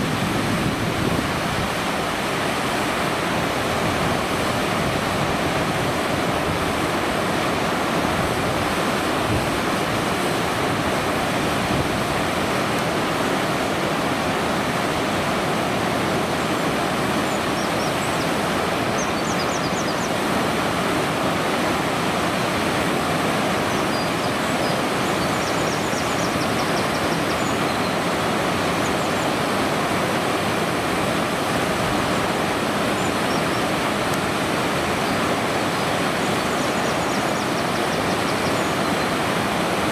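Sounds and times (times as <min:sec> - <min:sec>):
water rushing over weir: 0:00.0 - 0:39.9.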